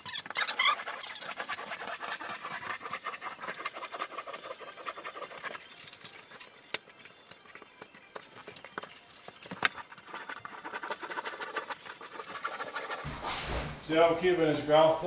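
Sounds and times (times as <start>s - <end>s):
grout float scraping: 0.0s - 13.8s
short squeaks: 13.1s - 13.8s.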